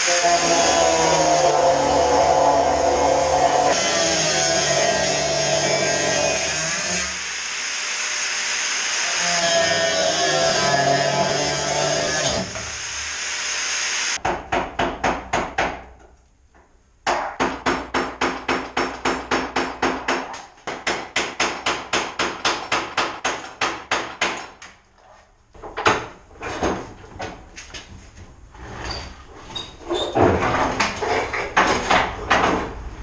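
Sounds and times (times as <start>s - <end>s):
angle grinder cutting steel: 0.0s - 14.2s.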